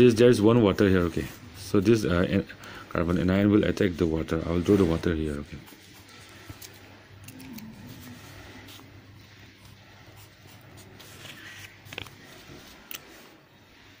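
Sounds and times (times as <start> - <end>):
pen scratching on paper: 4.6 - 13.4.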